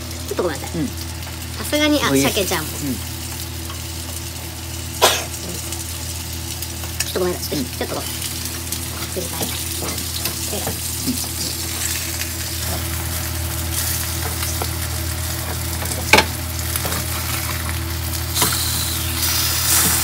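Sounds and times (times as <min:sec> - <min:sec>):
fish fillets sizzling in oil: 0:00.0 - 0:20.0.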